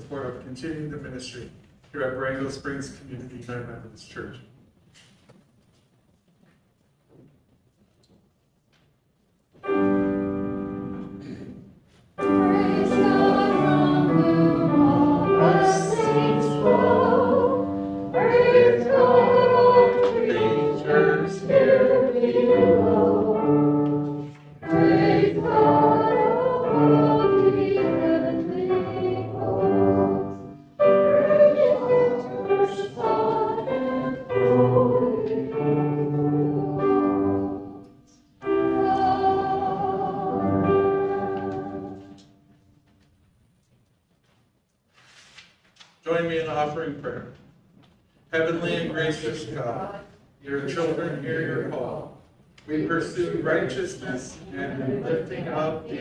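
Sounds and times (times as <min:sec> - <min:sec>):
congregation singing a hymn: 0:12.2 - 0:42.4, 0:48.4 - 0:56.0.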